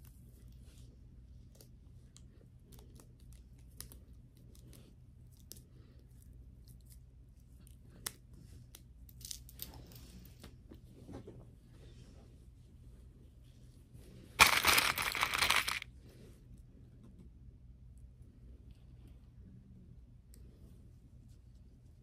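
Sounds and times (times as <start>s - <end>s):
low steady hum: 0.0s - 22.0s
scratchy handling sounds: 14.4s - 15.8s
small jewelry clicks: 14.4s - 15.8s.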